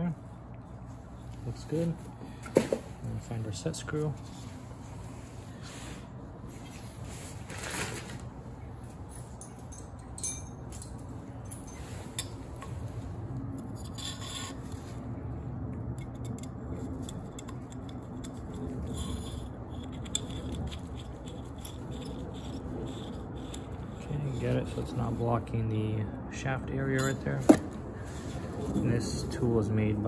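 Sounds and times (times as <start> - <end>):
low steady hum: 0.0 - 30.0
metal fan wheel handling clicks: 15.8 - 23.9.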